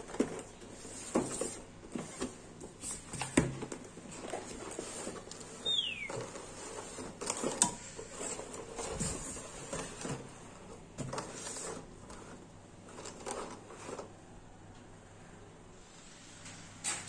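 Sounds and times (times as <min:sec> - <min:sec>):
plastic lids rustling: 0:00.0 - 0:14.2
short falling squeak: 0:05.6 - 0:06.1.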